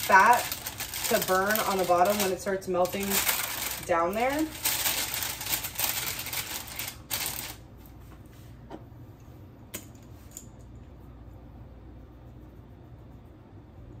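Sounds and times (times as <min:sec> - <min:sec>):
parchment paper crinkling: 0:00.0 - 0:07.7.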